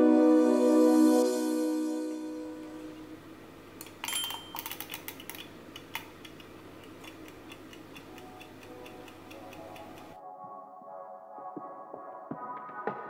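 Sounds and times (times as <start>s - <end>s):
timer dial clicking: 4.6s - 10.2s
clockwork ticking: 5.7s - 10.2s.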